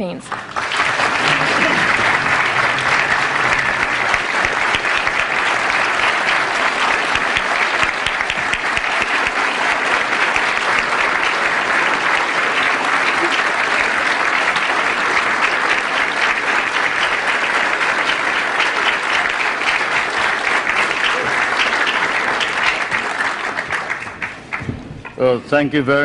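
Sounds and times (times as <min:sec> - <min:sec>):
large audience applauding: 0:00.0 - 0:26.0.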